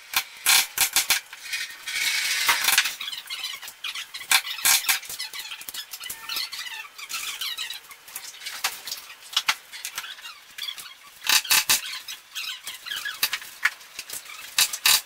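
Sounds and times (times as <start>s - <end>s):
metal fittings clicking and rattling: 13.0s - 15.0s.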